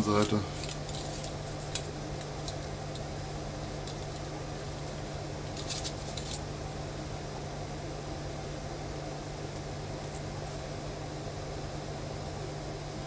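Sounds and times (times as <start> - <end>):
paper rustling: 0.0 - 3.1, 3.7 - 6.4
low electrical hum: 0.0 - 13.0.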